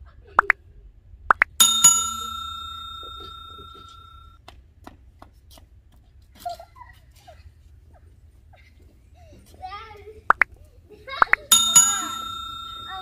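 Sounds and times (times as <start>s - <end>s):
notification bell ding: 1.6s - 4.3s, 11.5s - 13.0s.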